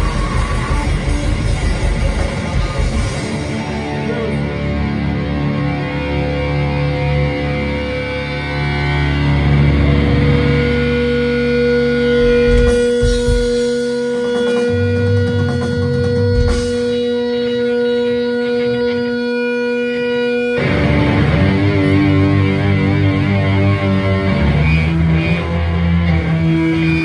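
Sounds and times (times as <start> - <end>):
rock band playing live: 0.0 - 27.0.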